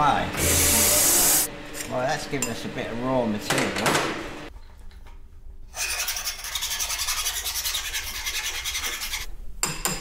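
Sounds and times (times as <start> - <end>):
file rasping on brass tube: 5.8 - 9.3.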